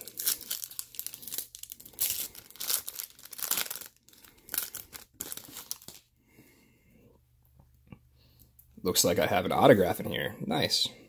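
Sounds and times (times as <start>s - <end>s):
foil wrapper tearing and crinkling: 0.0s - 6.1s.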